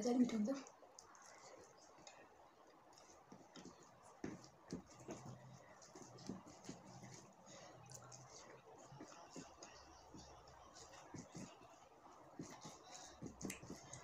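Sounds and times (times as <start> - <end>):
faint low hum: 0.0 - 14.0
chewing clicks and smacks: 0.6 - 3.1
fingers mixing rice on plate: 0.6 - 14.0.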